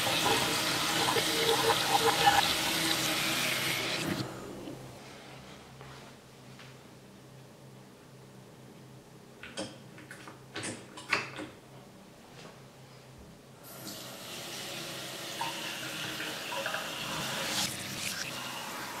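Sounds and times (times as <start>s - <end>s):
water running into steel sink: 0.0s - 4.2s, 13.8s - 19.0s.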